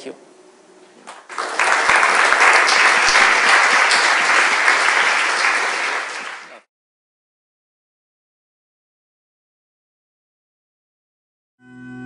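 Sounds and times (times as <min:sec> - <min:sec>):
audience applauding: 0:01.0 - 0:06.7.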